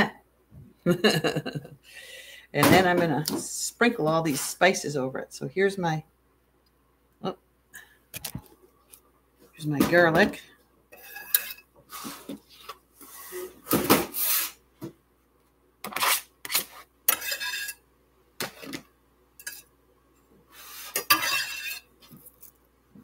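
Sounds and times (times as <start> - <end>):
knife scraping cutting board: 11.0 - 14.6, 15.8 - 17.8, 20.5 - 22.4.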